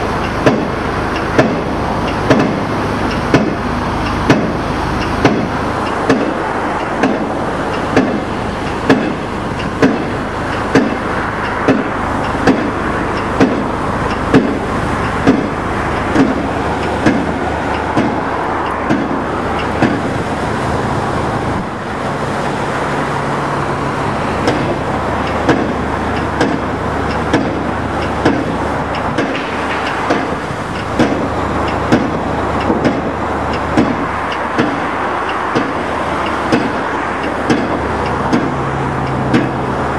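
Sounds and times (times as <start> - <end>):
diesel engines running: 0.0 - 39.9
pile hammer blows: 0.3 - 3.6, 4.2 - 20.1, 25.3 - 25.8, 26.4 - 33.1, 33.8 - 34.9, 35.6 - 38.6.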